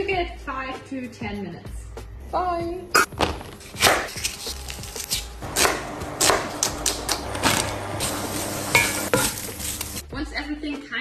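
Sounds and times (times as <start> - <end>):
knife chopping on wooden board: 3.0 - 4.4, 5.0 - 9.5.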